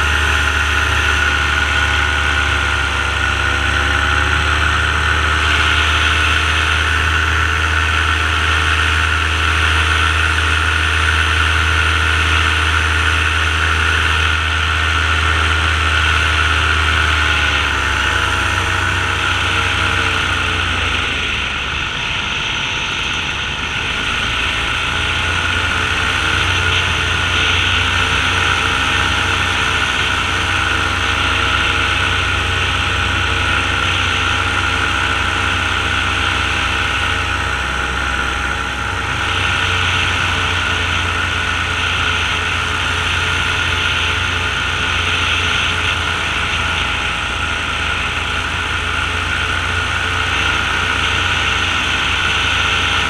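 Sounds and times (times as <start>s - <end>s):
paramotor engine droning: 0.0s - 53.0s.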